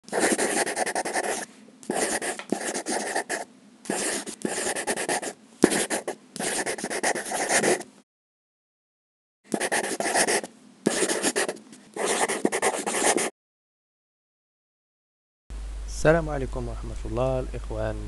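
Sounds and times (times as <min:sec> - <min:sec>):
marker pen scribbling: 0:00.1 - 0:07.9, 0:09.5 - 0:13.3.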